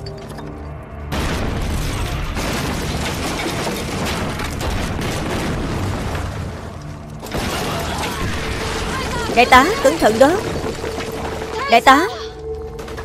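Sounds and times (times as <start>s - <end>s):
crackling debris: 0.0s - 13.0s
explosion: 1.1s - 9.3s.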